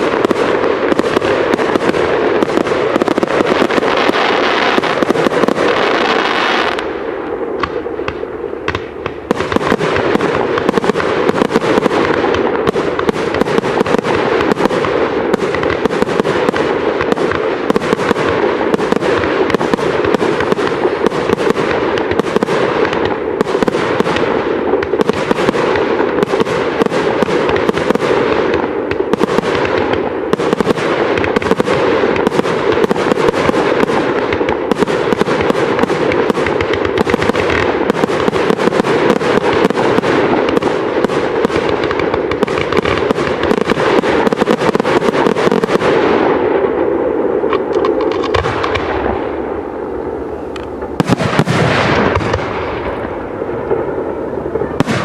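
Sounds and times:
firework shells bursting: 0:47.4 - 0:49.2.

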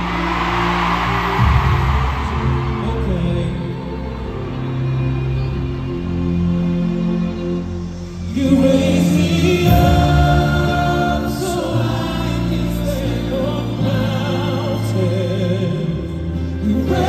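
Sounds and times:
men singing in harmony: 0:08.3 - 0:17.0
backing band playing: 0:08.4 - 0:15.8.

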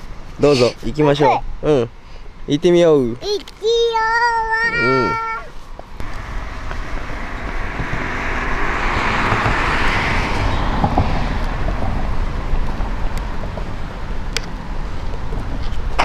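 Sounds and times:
steady low rumble: 0:05.9 - 0:13.9
car passing by: 0:06.0 - 0:15.7.

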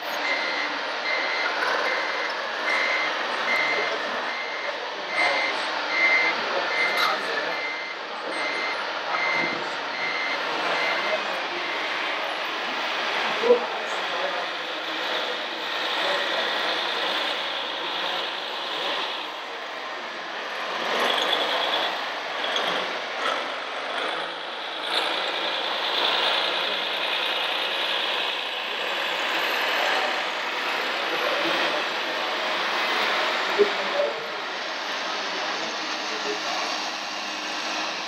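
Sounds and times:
toy truck motor whirring: 0:14.6 - 0:19.5, 0:20.4 - 0:33.6.

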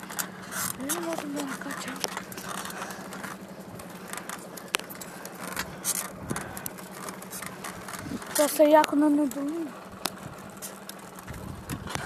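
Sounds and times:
bicycle rattles and clicks: 0:00.0 - 0:12.0
steady low hum: 0:00.0 - 0:12.0.

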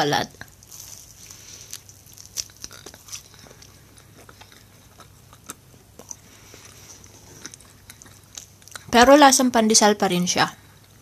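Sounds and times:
person chewing bread: 0:00.3 - 0:09.0.

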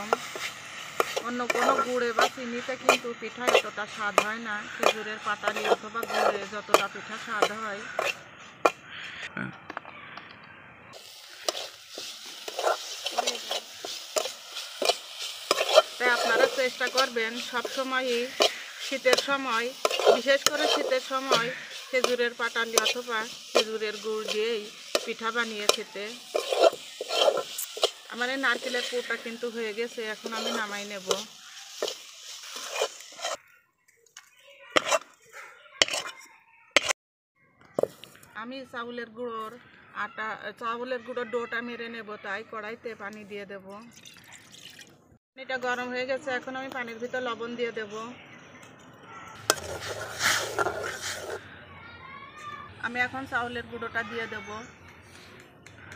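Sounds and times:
spatula scraping a pan: 0:00.0 - 0:09.0, 0:11.0 - 0:33.5, 0:34.6 - 0:36.9, 0:49.4 - 0:51.5
filling sizzling: 0:00.0 - 0:09.1, 0:11.0 - 0:33.6, 0:43.9 - 0:44.9, 0:49.4 - 0:51.4.

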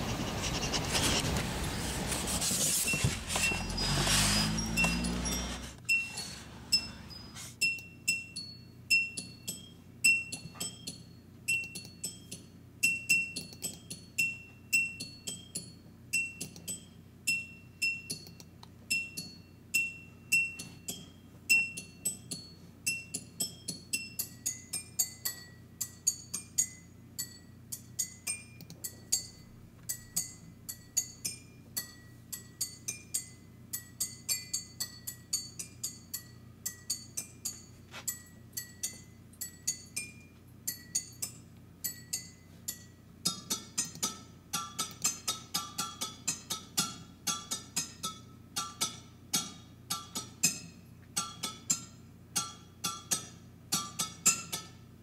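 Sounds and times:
tinkling bell-like music: 0:03.5 - 0:12.2.

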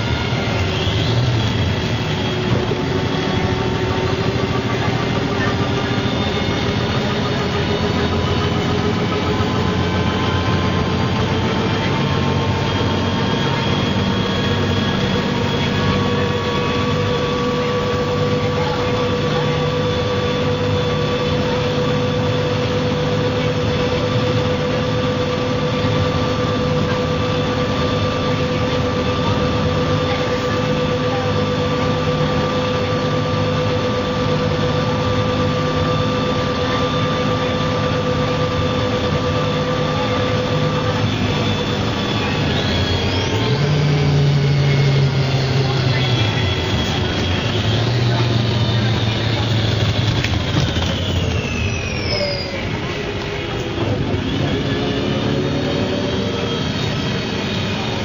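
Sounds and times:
bus diesel engine running: 0:00.0 - 0:58.0
driveline whine: 0:00.0 - 0:58.0.

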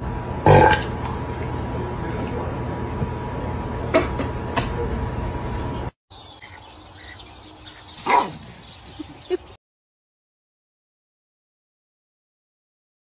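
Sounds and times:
dog yelping: 0:08.0 - 0:08.6.

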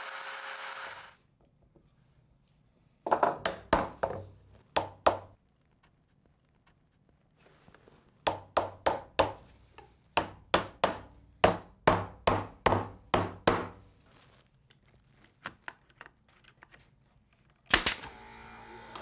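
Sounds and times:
hammer knocking on wood: 0:10.2 - 0:13.8
brad nailer cracks: 0:17.7 - 0:18.2.

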